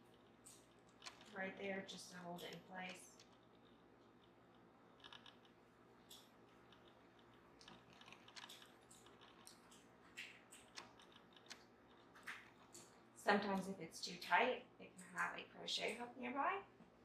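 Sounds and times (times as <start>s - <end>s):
clicks and taps of knitting loom: 0.1s - 1.4s, 5.0s - 12.9s.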